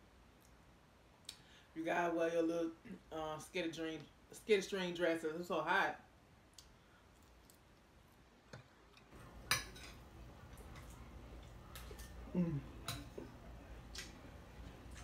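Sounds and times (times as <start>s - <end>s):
chewing: 10.4s - 15.0s.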